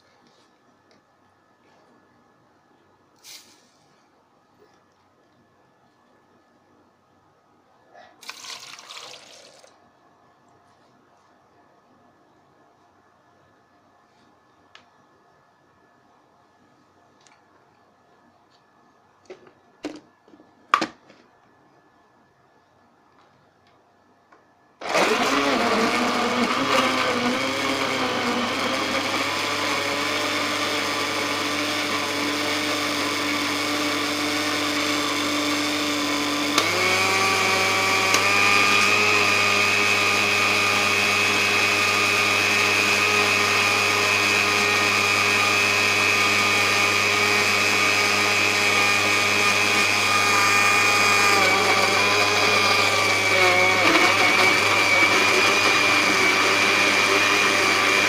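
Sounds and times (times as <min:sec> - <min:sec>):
blender motor running: 0:24.8 - 0:58.0.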